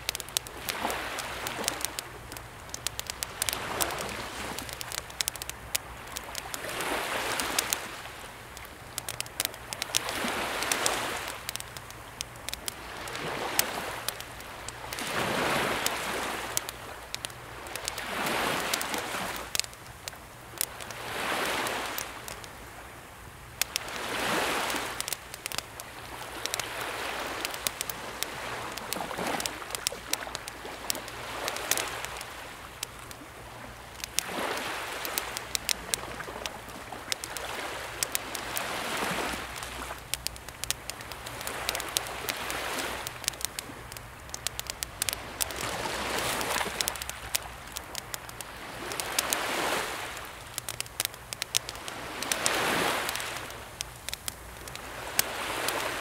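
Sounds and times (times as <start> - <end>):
campfire crackling and popping: 0.0 - 56.0
small waves washing ashore: 0.0 - 56.0.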